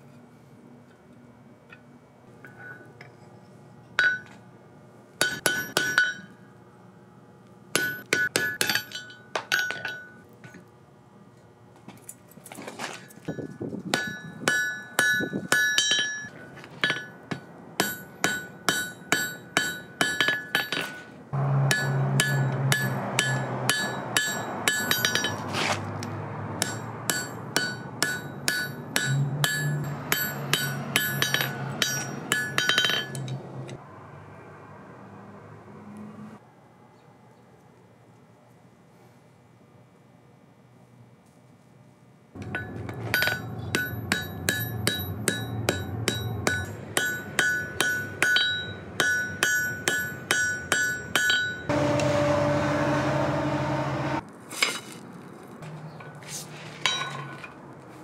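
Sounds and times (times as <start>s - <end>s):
hammer striking steel on anvil: 4.0s - 4.3s, 5.2s - 6.4s, 7.7s - 10.2s, 13.9s - 25.5s, 26.6s - 33.8s, 42.4s - 54.2s.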